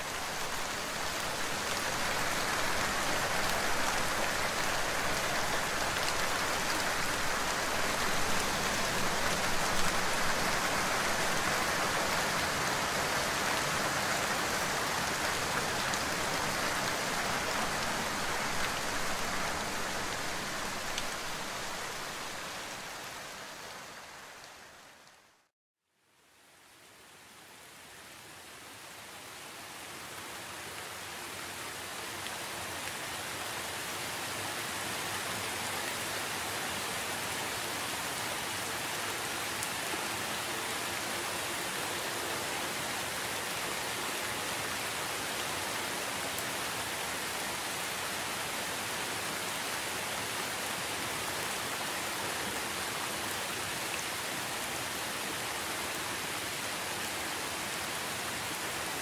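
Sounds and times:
heavy rain hiss: 0:00.0 - 0:25.1.

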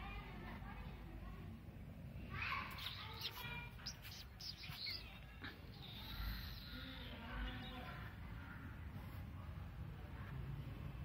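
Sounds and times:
small birds chirping: 0:02.2 - 0:09.1.

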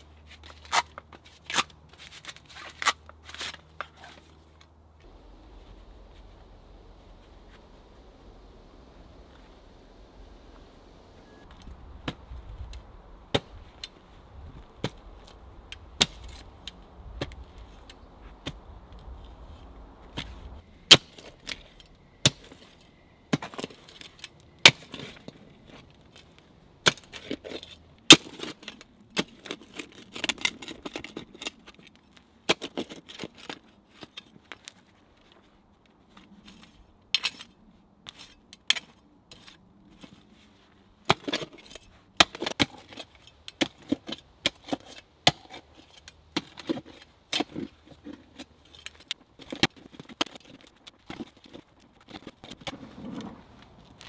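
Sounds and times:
gritty scrapes of earth: 0:00.0 - 0:08.3, 0:11.4 - 0:54.0
shovel blade striking soil: 0:20.2 - 0:25.2, 0:26.8 - 0:30.7, 0:41.1 - 0:51.3.

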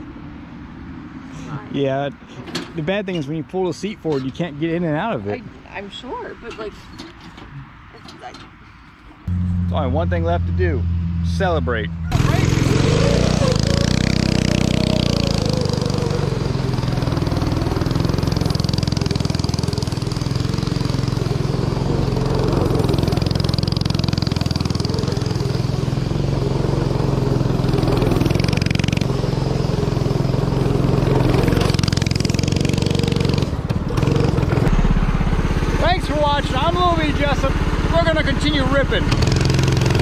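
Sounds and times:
small engine revving: 0:12.0 - 0:40.0.

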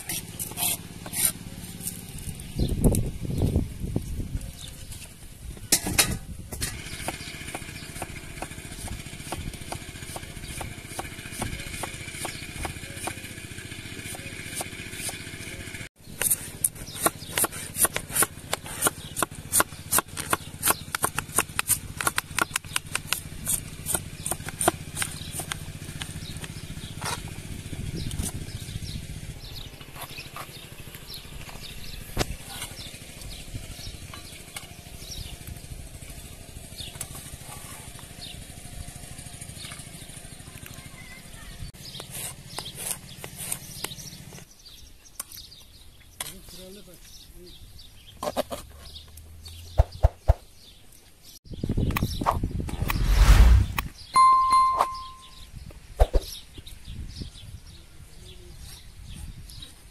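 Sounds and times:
knife chopping cabbage on wooden board: 0:07.0 - 0:13.3, 0:16.2 - 0:25.6.

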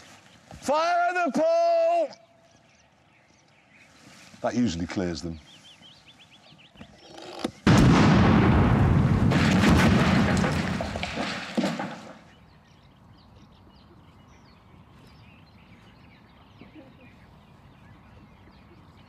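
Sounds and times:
explosion rumbling and clattering: 0:07.7 - 0:12.2.

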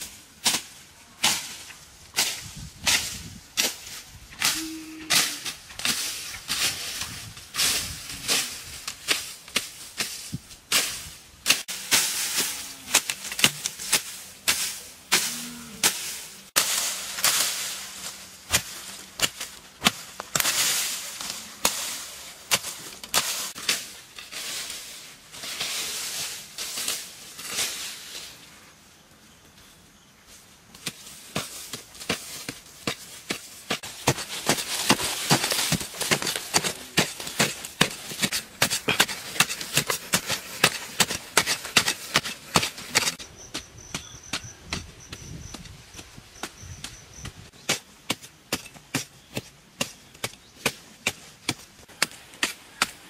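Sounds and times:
digging tool chopping dry earth: 0:00.4 - 0:24.4, 0:30.8 - 0:53.0
soil clods rattling down: 0:31.4 - 0:43.2.

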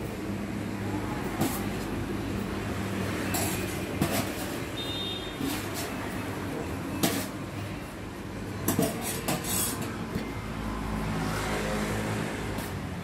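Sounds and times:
low traffic rumble: 0:00.0 - 0:13.0
metal spoon clinking on trays: 0:03.2 - 0:04.6, 0:06.9 - 0:07.4, 0:08.6 - 0:10.2.

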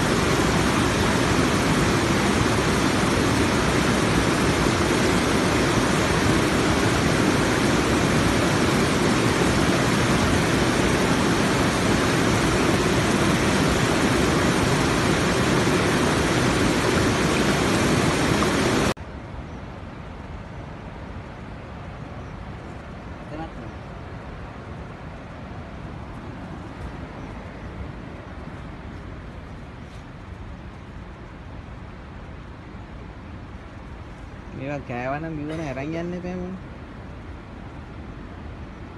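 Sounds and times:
waterfall rushing over boulders: 0:00.0 - 0:19.2.

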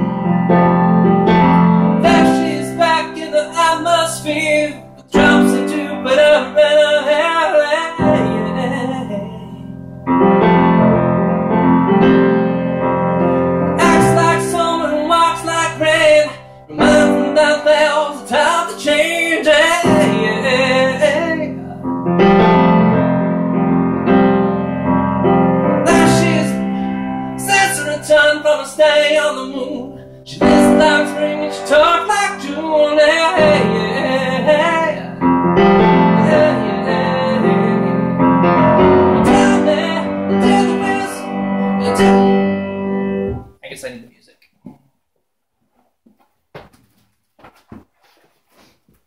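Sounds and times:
grand piano playing: 0:00.0 - 0:43.6
man singing: 0:01.9 - 0:09.7, 0:13.7 - 0:21.9, 0:25.8 - 0:42.5.

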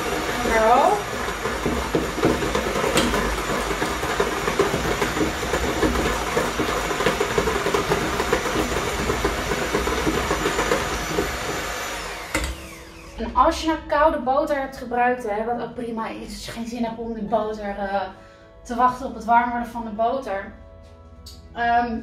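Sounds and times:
electric hand mixer whirring: 0:00.0 - 0:13.4.

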